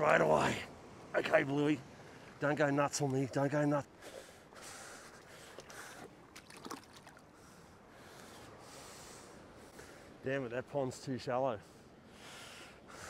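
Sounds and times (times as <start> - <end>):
water trickling and splashing: 5.0 - 7.6.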